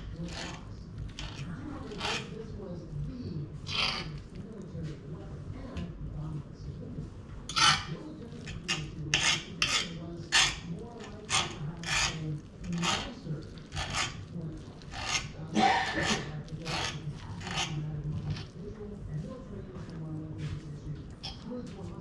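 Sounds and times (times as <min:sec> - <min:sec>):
metal utensil scraping wooden board: 0:00.0 - 0:02.4, 0:03.7 - 0:04.2, 0:07.5 - 0:14.2, 0:14.8 - 0:18.5.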